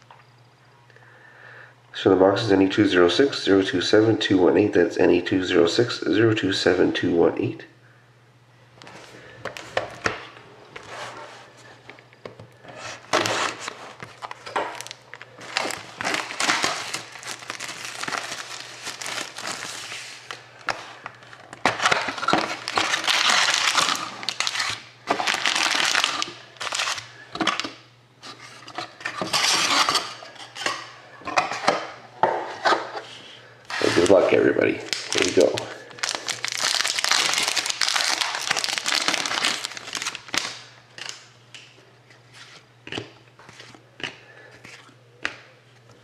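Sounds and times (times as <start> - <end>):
card packs rustling: 12.5 - 30.2, 33.7 - 41.2
plastic wrap crinkling: 13.0 - 27.7, 33.7 - 41.2.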